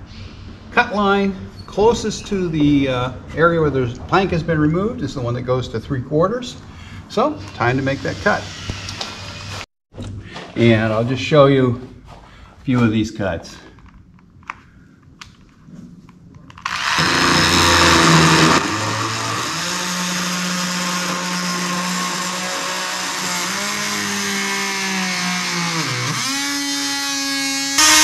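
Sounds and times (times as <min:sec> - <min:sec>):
power tool cutting wood: 0:07.4 - 0:09.7, 0:16.6 - 0:28.0.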